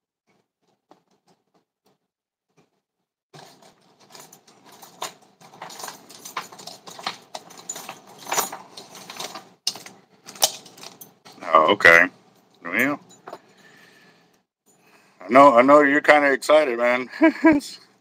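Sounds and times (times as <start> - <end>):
small metal pieces jingling: 3.5 - 11.4.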